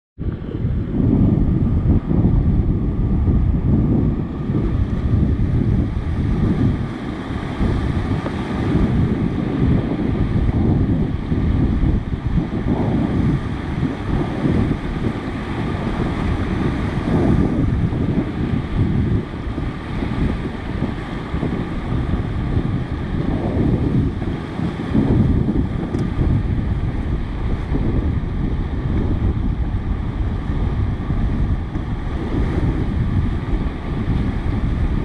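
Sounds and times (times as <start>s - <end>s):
wind buffeting microphone: 0.2s - 35.0s.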